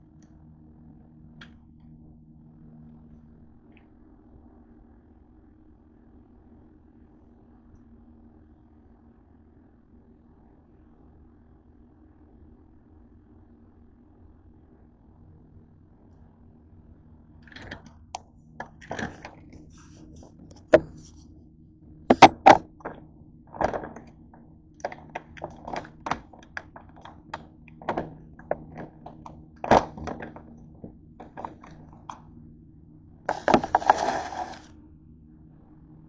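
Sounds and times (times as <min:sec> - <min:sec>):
faint low hum: 0:00.0 - 0:36.0
rustling clatter: 0:18.7 - 0:21.2, 0:24.8 - 0:32.1, 0:33.3 - 0:34.7.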